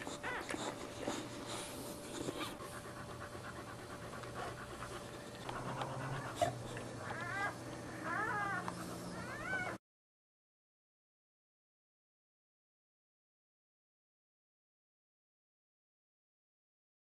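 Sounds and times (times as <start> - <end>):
dog panting: 0.0 - 9.7
dog whining: 0.0 - 9.8.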